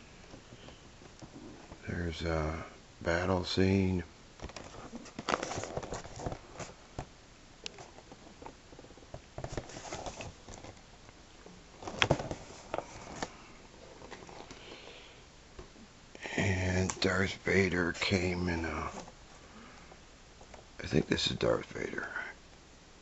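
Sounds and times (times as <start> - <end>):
plastic crinkling and rustling: 4.4 - 14.7.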